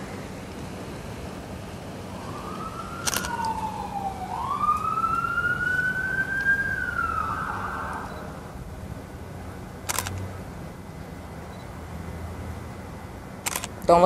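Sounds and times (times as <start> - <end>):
siren wailing: 2.1 - 8.6
camera shutter click: 3.0 - 3.4, 9.9 - 10.2, 13.4 - 13.8.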